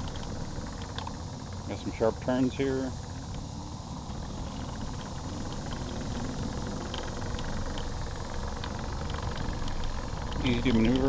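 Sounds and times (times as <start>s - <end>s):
scooter wheels rumbling on wooden planks: 4.0s - 11.0s.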